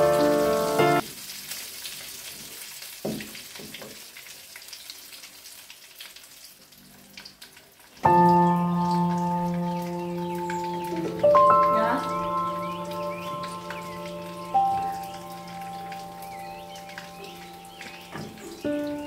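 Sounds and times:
background music: 0:00.0 - 0:01.0, 0:08.1 - 0:19.0
chicken sizzling in oil: 0:00.0 - 0:19.0
knock: 0:03.0 - 0:04.0, 0:18.1 - 0:18.5.

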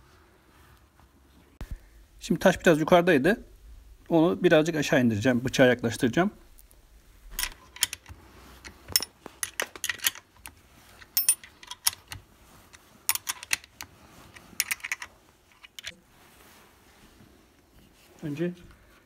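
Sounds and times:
wrench clinking on bolt: 0:07.3 - 0:08.1, 0:08.9 - 0:10.3, 0:11.1 - 0:12.2, 0:13.1 - 0:13.7.

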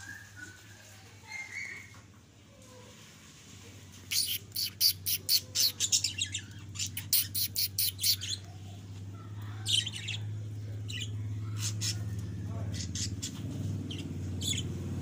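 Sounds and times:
budgerigars chirping: 0:04.1 - 0:08.5, 0:09.7 - 0:10.3, 0:10.9 - 0:14.8.

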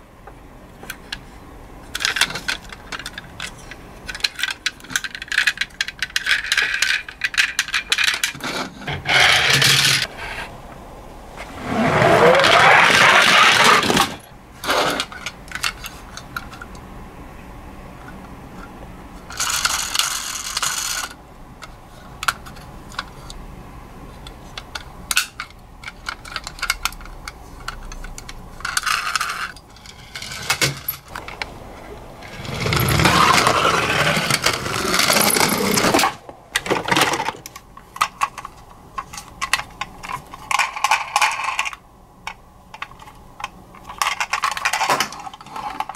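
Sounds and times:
toys clicking and rattling: 0:01.9 - 0:10.1, 0:12.2 - 0:16.8, 0:19.3 - 0:23.4, 0:24.2 - 0:31.5, 0:32.2 - 0:45.9
toy rolling down wooden ramp: 0:11.4 - 0:15.1, 0:32.2 - 0:37.5.

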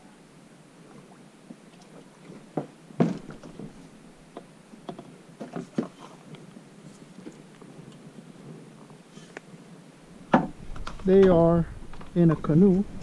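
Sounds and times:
kayak knocking against wooden dock: 0:10.3 - 0:12.2.

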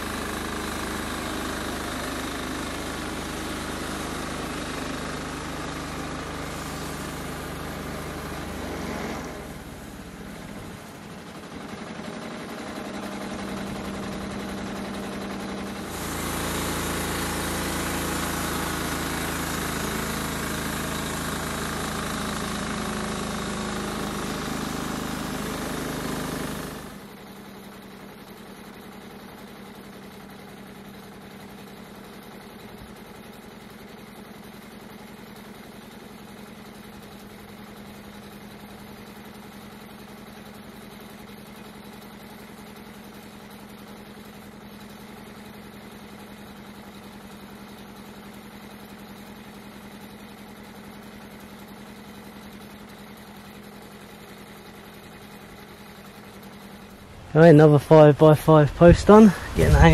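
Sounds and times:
sawmill engine cutting log: 0:00.0 - 0:27.0.

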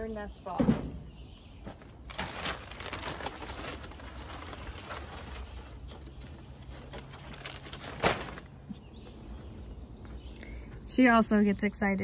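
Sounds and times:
plastic bag rustling: 0:01.6 - 0:08.7.

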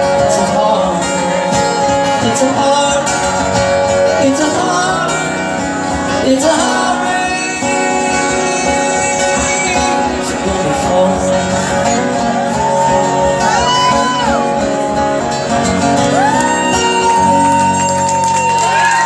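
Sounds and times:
man singing long notes: 0:00.0 - 0:14.6
acoustic guitar strummed: 0:00.0 - 0:19.0.

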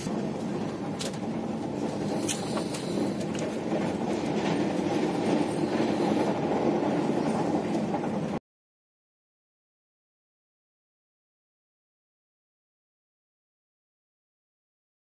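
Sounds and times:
train wheels rumbling on rails: 0:00.0 - 0:08.4.

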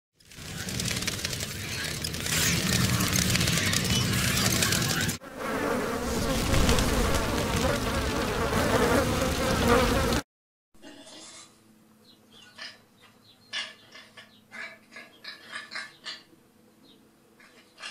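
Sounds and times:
bees buzzing: 0:00.4 - 0:10.2.

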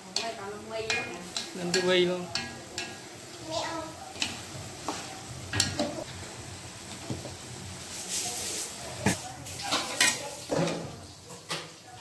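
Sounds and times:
chicken sizzling in a wok: 0:00.0 - 0:12.0
metal ladle clinking on wok: 0:00.1 - 0:03.0.

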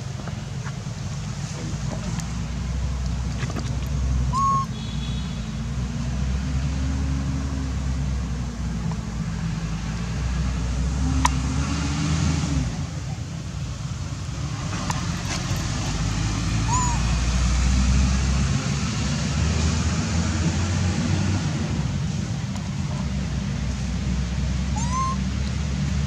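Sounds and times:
engine running rumble: 0:00.0 - 0:26.0.

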